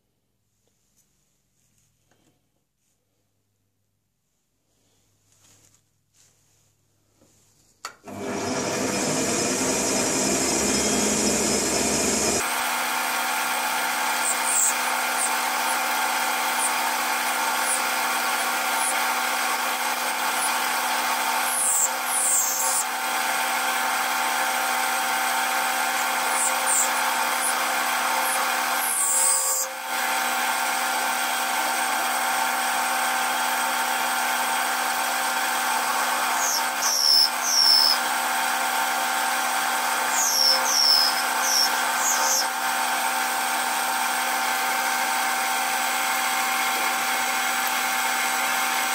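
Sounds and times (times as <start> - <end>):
metal lathe running: 8.1 - 48.9
high screeches from cutting: 14.0 - 20.7, 21.4 - 22.9, 26.2 - 29.8, 36.4 - 38.0, 40.1 - 42.5.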